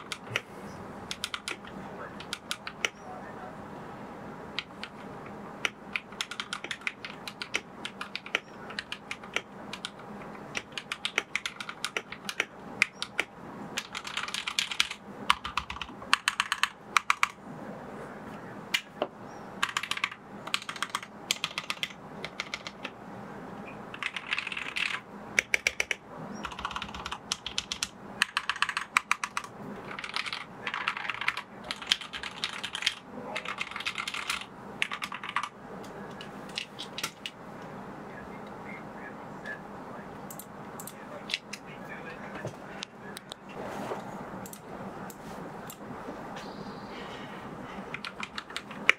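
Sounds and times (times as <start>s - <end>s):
mechanical keyboard clacks: 0.0s - 0.4s, 1.1s - 3.0s, 4.6s - 17.4s, 19.6s - 23.0s, 23.9s - 37.4s, 40.3s - 41.6s, 47.9s - 48.9s.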